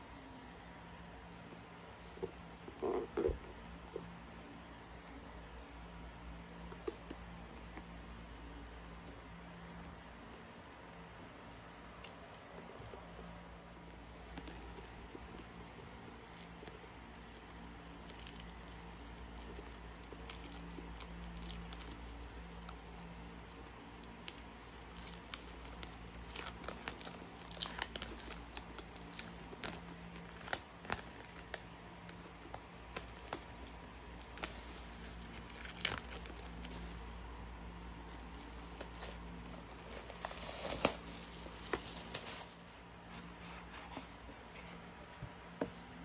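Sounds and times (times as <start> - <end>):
plastic shrink-wrap crinkling: 13.8 - 42.8.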